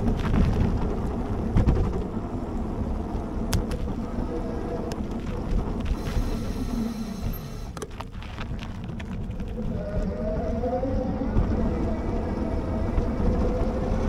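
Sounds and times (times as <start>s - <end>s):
bike rattling over bumps: 0.0s - 14.0s
tyre noise on pavement: 0.0s - 14.0s
wind on microphone: 8.4s - 14.0s
faint whine rising in pitch: 9.6s - 14.0s.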